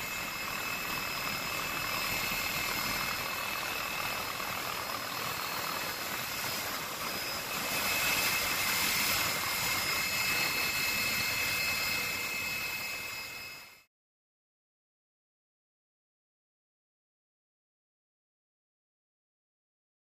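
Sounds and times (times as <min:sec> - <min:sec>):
helicopter cabin drone: 0:00.0 - 0:13.9
high turbine whine: 0:00.0 - 0:13.9.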